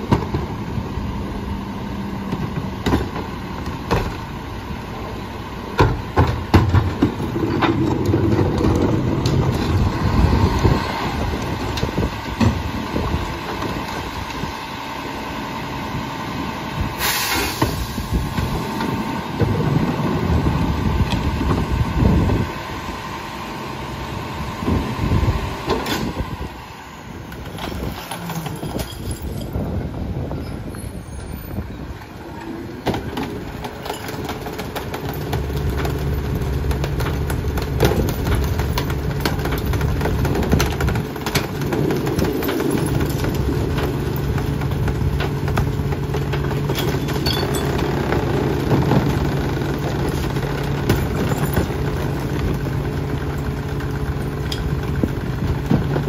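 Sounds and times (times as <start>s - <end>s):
trash carts knocking and clanking: 0.0s - 14.6s, 16.3s - 22.6s, 24.1s - 56.0s
garbage truck engine running: 0.0s - 56.0s.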